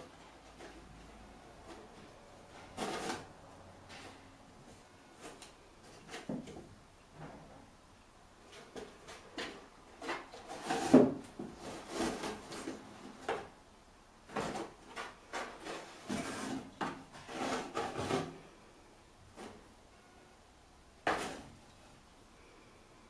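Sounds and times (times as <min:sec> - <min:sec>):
kitten scratching cardboard: 0:08.5 - 0:13.4, 0:14.3 - 0:18.4.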